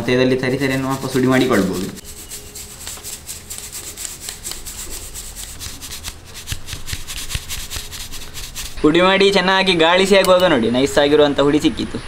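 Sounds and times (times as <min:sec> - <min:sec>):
powder sifted through steel sieve: 0:00.4 - 0:08.9.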